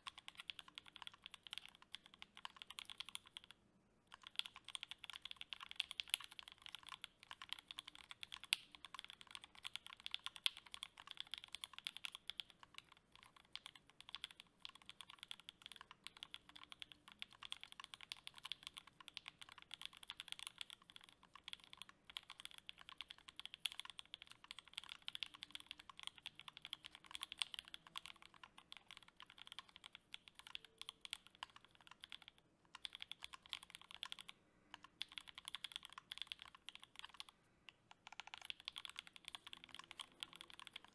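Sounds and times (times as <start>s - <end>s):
mechanical keyboard typing: 0.0s - 40.9s.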